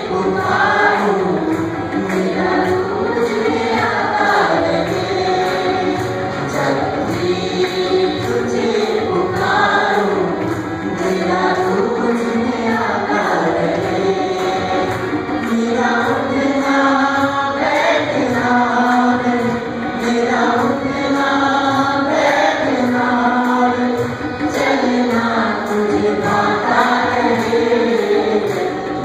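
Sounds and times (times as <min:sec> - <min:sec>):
choir singing through microphones: 0:00.0 - 0:29.0.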